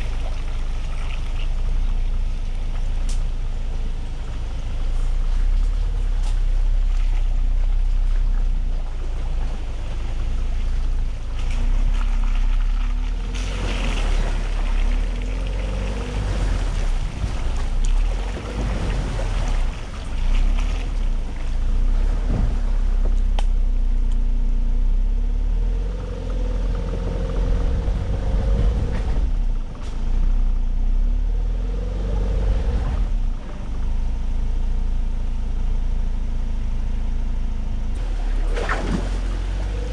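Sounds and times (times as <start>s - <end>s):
pickup engine revving: 3.0s - 24.1s, 24.9s - 33.9s.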